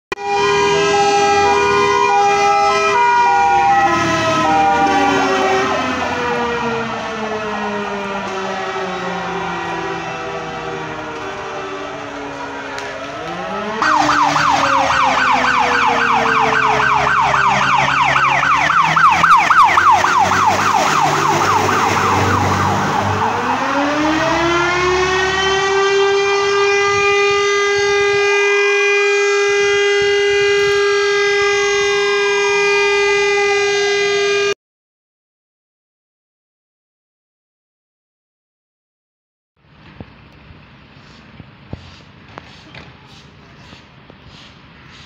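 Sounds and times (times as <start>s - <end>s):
fire engine siren yelping and wailing: 0.1s - 34.6s.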